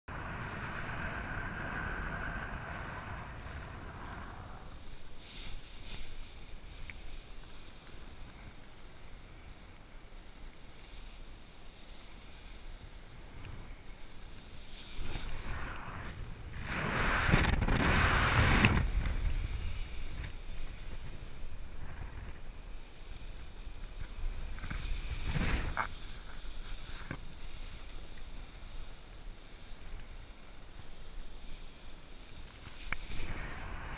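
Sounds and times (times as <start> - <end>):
wind buffeting microphone: 0.1 - 5.8, 14.8 - 27.7, 32.9 - 33.9.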